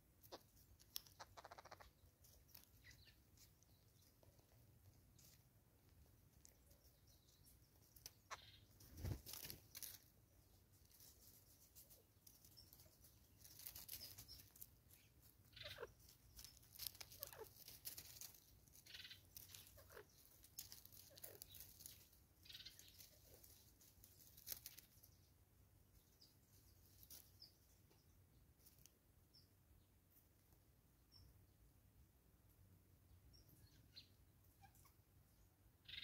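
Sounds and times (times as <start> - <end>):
soft bird calls: 0.0 - 31.9, 33.0 - 36.0
birds rustling in leaf litter: 0.1 - 27.9.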